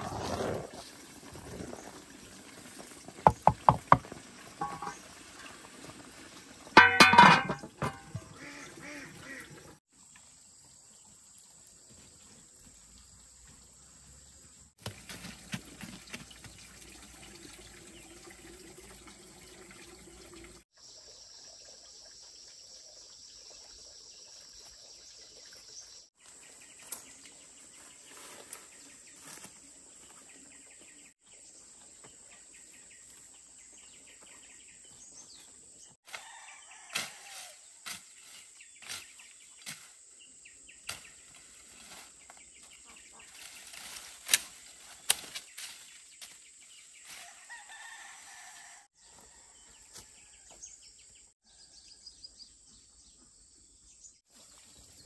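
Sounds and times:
birds chirping: 6.8s - 9.7s
rustling through brush: 40.9s - 48.7s.

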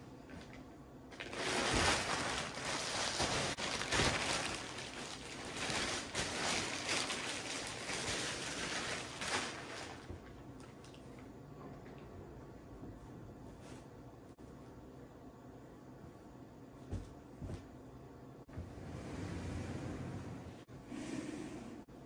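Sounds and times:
plastic bag crinkling: 1.1s - 10.4s.

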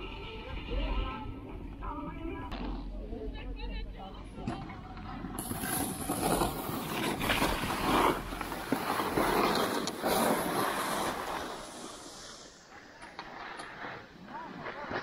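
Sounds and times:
skis scraping on hard snow: 5.1s - 15.0s.

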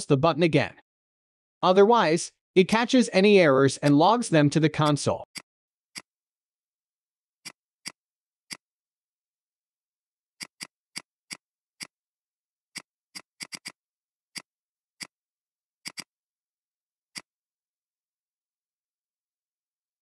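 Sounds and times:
computer mouse clicks: 10.4s - 12.0s, 12.7s - 15.2s, 15.8s - 16.1s.

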